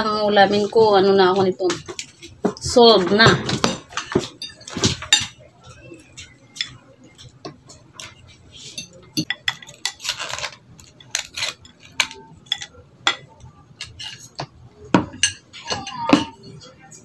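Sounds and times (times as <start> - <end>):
cutlery scraping plate: 1.7 - 16.6
cutlery clinking on plate: 3.5 - 16.7.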